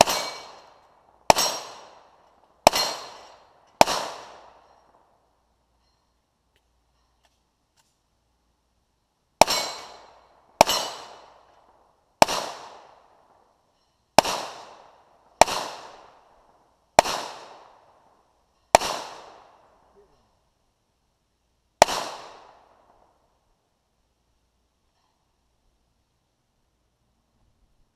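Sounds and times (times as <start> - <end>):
handgun shots with echo: 0.0 - 4.8, 9.4 - 11.4, 12.2 - 13.0, 14.2 - 16.1, 17.0 - 17.8, 18.7 - 19.6, 21.8 - 22.6.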